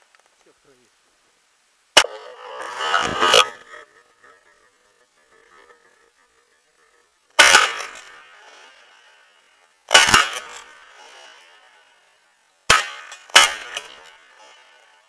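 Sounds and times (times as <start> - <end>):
shotgun shots with echo: 7.4 - 8.3, 9.9 - 11.3, 12.7 - 14.1.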